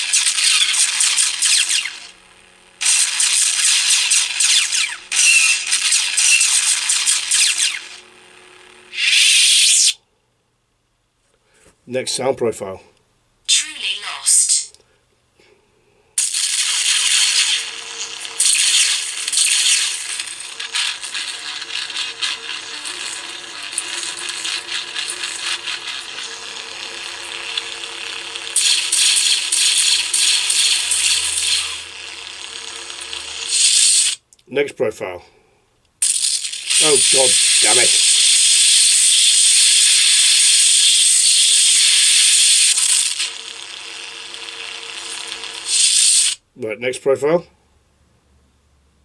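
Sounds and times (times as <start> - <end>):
lightsaber hissing crackle: 8.9 - 10.0, 18.3 - 23.1, 36.0 - 43.2
lightsaber hissing surges: 8.9 - 10.0.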